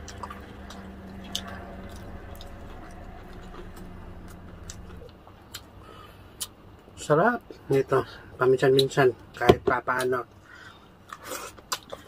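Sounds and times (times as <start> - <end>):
chewing food: 0.0 - 5.7, 11.0 - 12.0
steady low hum: 0.0 - 12.0.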